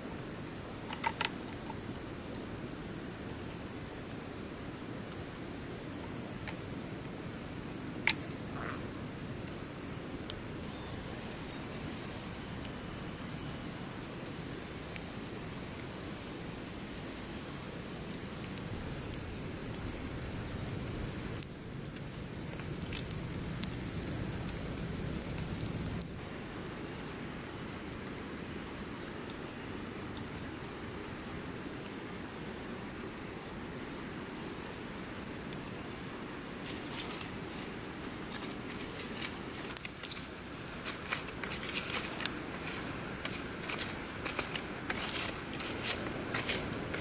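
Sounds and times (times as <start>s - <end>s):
campfire crackling and popping: 0.1s - 26.2s, 36.4s - 47.0s
high-pitched insect drone: 10.4s - 21.4s.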